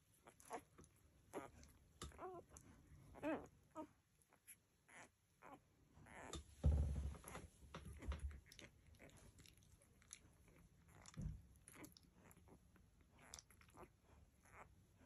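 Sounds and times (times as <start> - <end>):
puppies suckling: 0.0 - 6.4, 7.2 - 15.0
low rumbling thump: 6.6 - 8.3.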